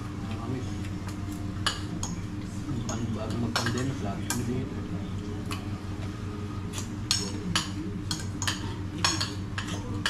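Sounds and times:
low background hum: 0:00.0 - 0:10.0
cutlery clinking on plates: 0:06.8 - 0:10.0.

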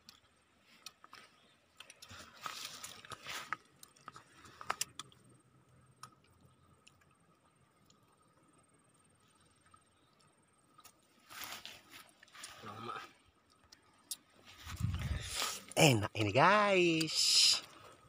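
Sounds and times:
soft chewing and mouth clicks: 0:00.0 - 0:15.8
rustling noise: 0:11.1 - 0:12.6.

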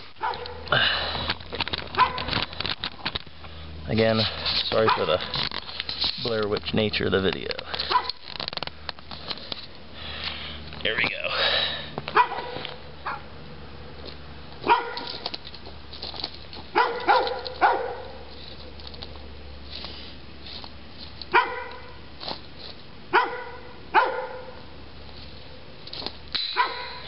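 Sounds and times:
dog barking: 0:00.2 - 0:00.6, 0:02.0 - 0:02.3, 0:04.8 - 0:05.2, 0:07.9 - 0:08.2, 0:12.2 - 0:13.3, 0:14.6 - 0:15.2, 0:16.7 - 0:18.2, 0:21.3 - 0:22.0, 0:23.1 - 0:24.6, 0:26.6 - 0:27.0.

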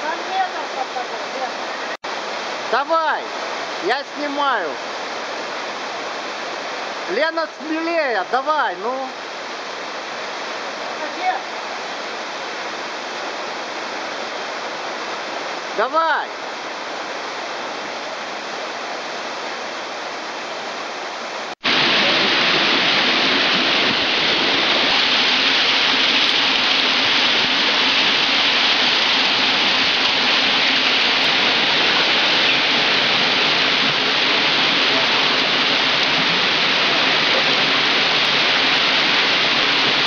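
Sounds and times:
waterfall rushing: 0:00.0 - 0:40.0.

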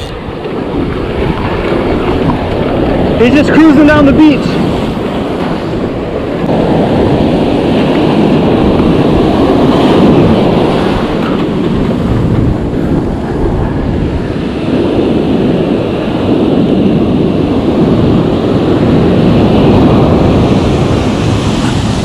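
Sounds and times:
surf breaking on beach: 0:00.0 - 0:22.0
wind rumble on microphone: 0:00.0 - 0:22.0.

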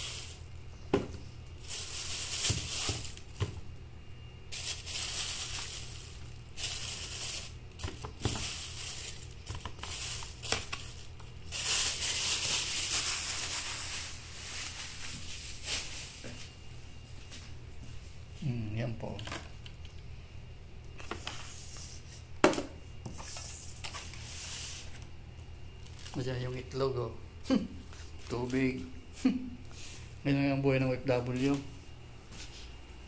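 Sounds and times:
plastic rustling and crinkling: 0:00.0 - 0:03.7, 0:04.5 - 0:16.5, 0:25.8 - 0:26.6
steady low hum: 0:00.0 - 0:33.0.

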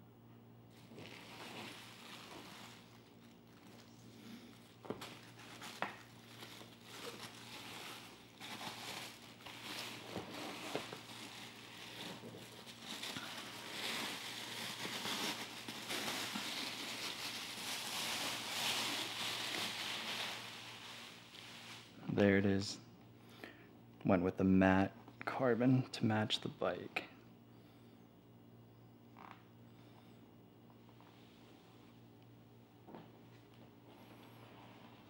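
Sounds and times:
plastic bag crinkling: 0:00.7 - 0:22.0.

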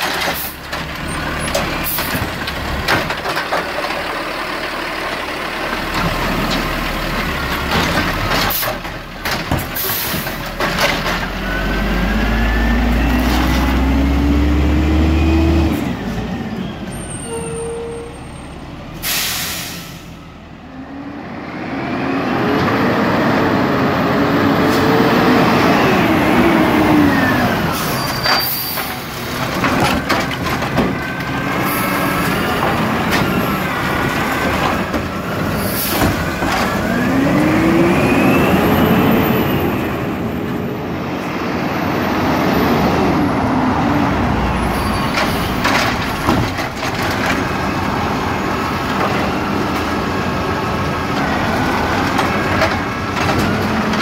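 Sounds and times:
garbage truck engine running: 0:22.2 - 0:39.3, 0:43.2 - 0:54.0.

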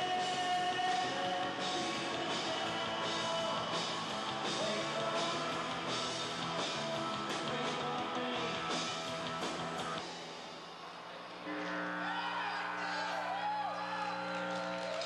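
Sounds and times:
live rock band playing: 0:00.0 - 0:10.0.

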